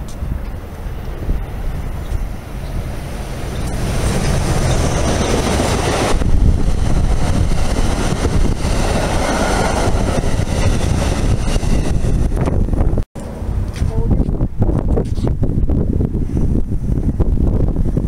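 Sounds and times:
train passing at speed: 0:00.0 - 0:13.7.

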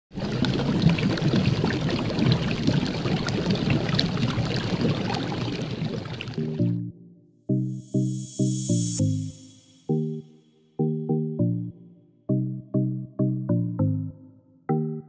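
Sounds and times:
pitched music notes: 0:06.4 - 0:15.0.

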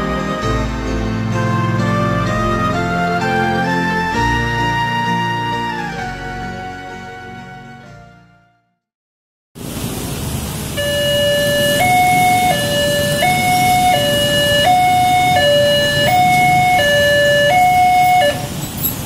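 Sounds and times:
traffic noise: 0:09.6 - 0:19.0
two-tone siren over loudspeaker: 0:10.8 - 0:18.5.

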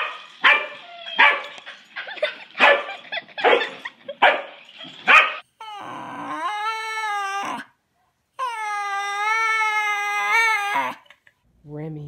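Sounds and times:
dog barking: 0:00.0 - 0:01.6, 0:02.6 - 0:05.4
dog howling: 0:04.9 - 0:07.8, 0:08.4 - 0:11.1.

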